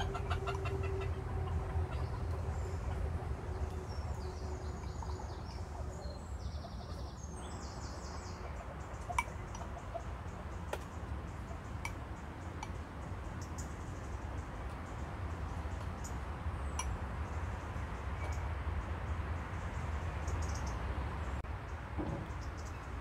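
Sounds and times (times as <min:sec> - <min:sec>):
steady low rumble: 0:00.0 - 0:20.3
small birds chirping: 0:00.0 - 0:23.0.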